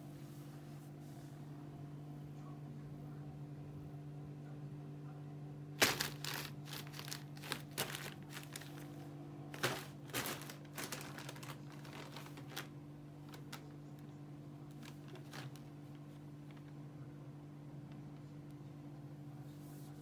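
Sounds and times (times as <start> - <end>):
steady low hum: 0.0 - 20.0
plastic bags crinkling: 5.8 - 14.1, 14.7 - 16.7.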